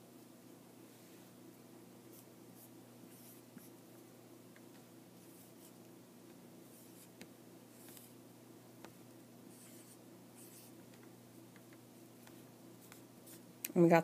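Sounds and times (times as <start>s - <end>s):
low steady hum: 0.0s - 14.0s
marker scratching on whiteboard: 2.1s - 3.8s, 5.2s - 5.8s, 6.7s - 8.2s, 9.5s - 10.8s.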